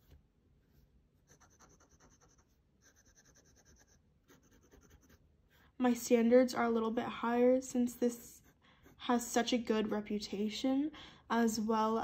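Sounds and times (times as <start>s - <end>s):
fountain pen nib scratching paper: 1.3s - 5.2s.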